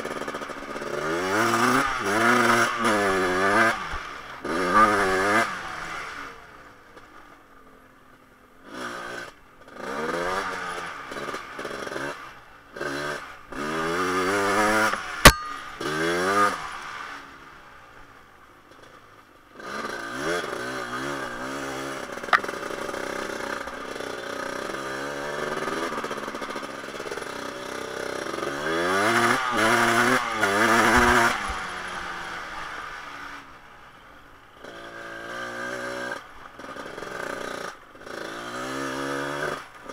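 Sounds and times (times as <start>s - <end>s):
two-stroke engine revving: 0.0s - 6.4s, 8.6s - 17.2s, 19.6s - 33.5s, 34.6s - 39.9s
sharp knock: 14.9s - 16.0s.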